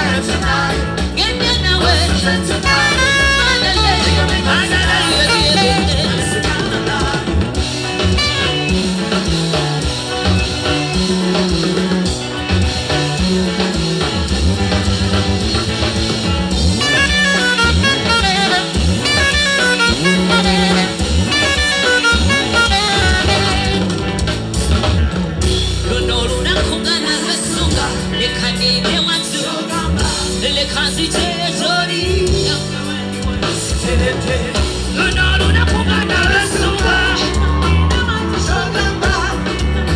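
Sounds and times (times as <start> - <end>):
person singing: 0.0 - 8.7, 16.8 - 23.9, 25.8 - 39.9
saxophone: 0.0 - 24.9
live band playing dance music: 0.0 - 39.9.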